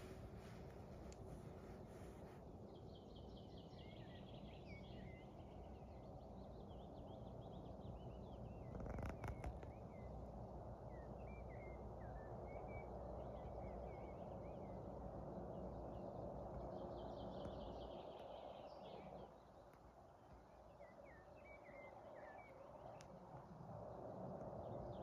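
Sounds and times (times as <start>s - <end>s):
small birds chirping: 0.0s - 10.2s, 10.8s - 23.3s.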